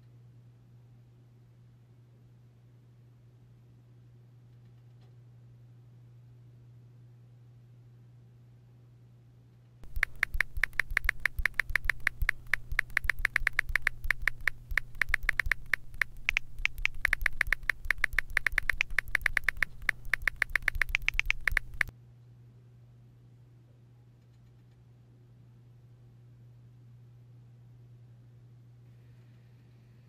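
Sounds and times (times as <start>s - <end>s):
rapid sharp clicks: 9.8s - 21.9s
steady low hum: 9.8s - 21.9s.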